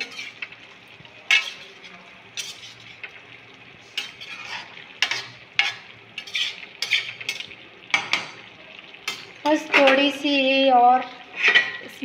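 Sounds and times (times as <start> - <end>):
metal spatula scraping pan: 0.0 - 0.5, 1.3 - 3.1, 3.8 - 8.2, 9.1 - 10.2, 11.2 - 12.0
soft frying sizzle: 0.0 - 12.0.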